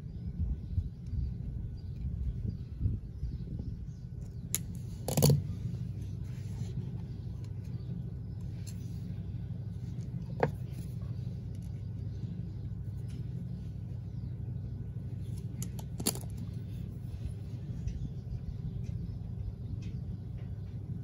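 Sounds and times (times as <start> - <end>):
steady low rumble: 0.0 - 21.0
pliers clicking on metal tube: 4.5 - 5.4.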